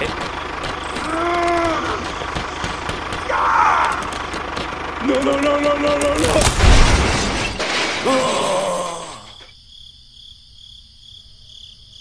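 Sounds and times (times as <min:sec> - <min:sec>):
wavering voice-like cries: 0:00.9 - 0:04.2
loud crash with breaking: 0:06.2 - 0:09.0.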